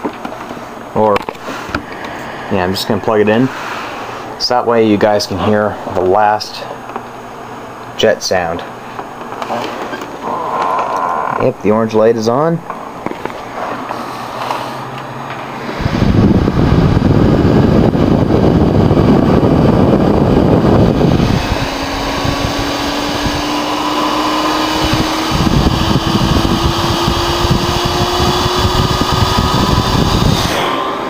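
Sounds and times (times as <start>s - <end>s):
rising fan whine: 0.0s - 31.0s
computer fans rushing: 9.2s - 31.0s.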